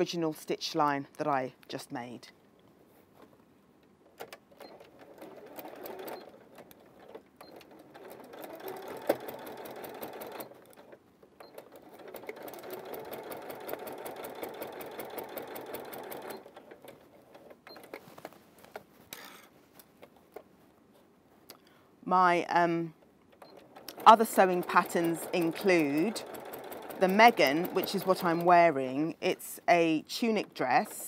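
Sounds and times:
sewing machine stitching: 4.2s - 18.1s, 23.4s - 29.0s.

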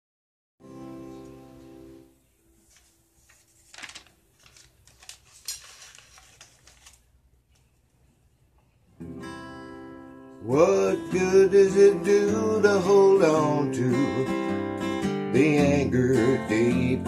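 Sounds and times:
paper rustling: 2.5s - 7.8s.

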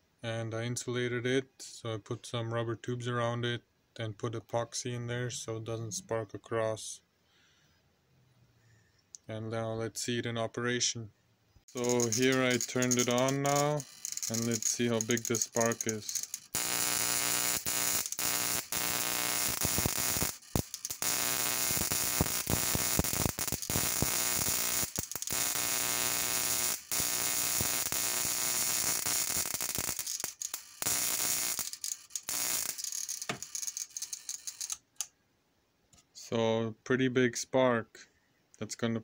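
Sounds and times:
electric spark buzzing crackle: 11.7s - 34.8s.

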